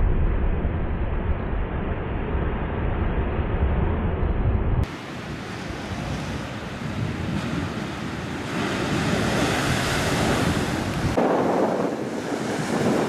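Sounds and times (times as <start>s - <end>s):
wind buffeting microphone: 4.3s - 13.0s
surf breaking over rocks: 4.8s - 13.0s.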